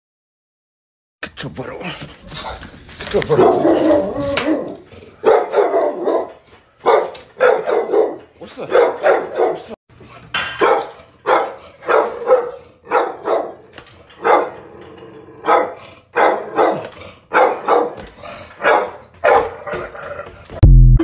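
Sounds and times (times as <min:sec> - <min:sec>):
dog barking: 0:03.1 - 0:09.8, 0:10.5 - 0:14.6, 0:15.4 - 0:19.8
loud electronic jingle: 0:20.6 - 0:21.0.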